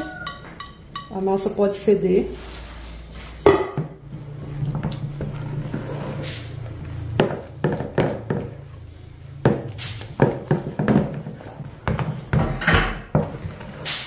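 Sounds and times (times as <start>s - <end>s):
spoon stirring thick dough: 4.1s - 14.0s.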